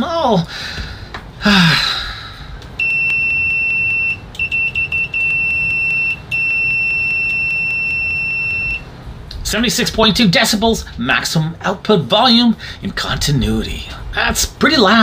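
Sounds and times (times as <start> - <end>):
multimeter continuity buzzer beep: 2.8 - 8.9.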